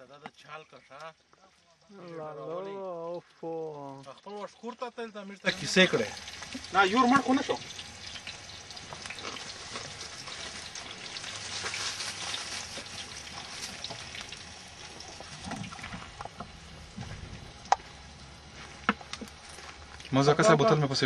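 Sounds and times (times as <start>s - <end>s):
steady hissing: 0.0s - 21.0s
faint crackles: 7.7s - 20.2s.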